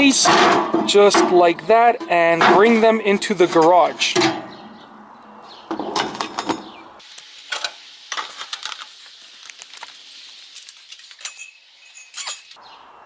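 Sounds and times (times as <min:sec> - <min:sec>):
metal grill grates clinking: 0:06.4 - 0:12.6.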